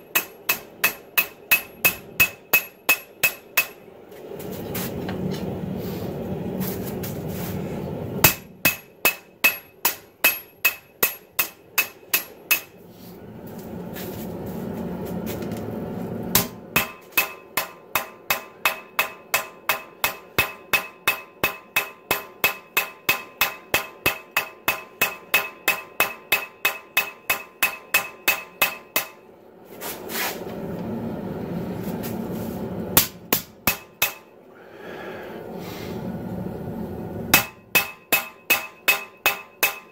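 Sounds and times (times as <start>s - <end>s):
hammer striking steel on anvil: 0.0s - 3.9s, 8.2s - 12.8s, 16.3s - 29.3s, 33.0s - 34.4s, 37.3s - 39.9s
steady rushing noise: 0.1s - 26.5s, 34.9s - 38.0s.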